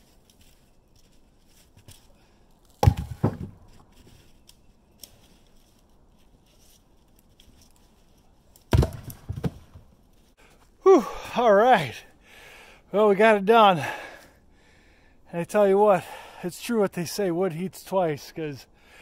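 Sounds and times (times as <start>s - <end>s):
logs landing with wooden thuds: 0.2s - 5.7s, 8.5s - 10.0s.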